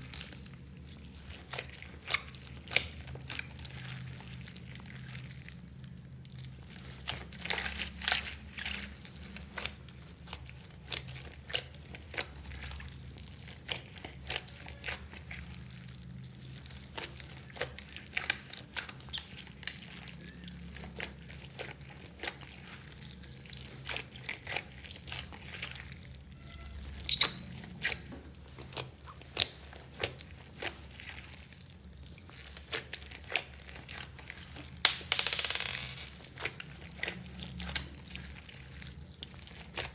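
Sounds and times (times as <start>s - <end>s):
hands squishing beaded slime: 0.0s - 35.2s, 36.1s - 39.9s.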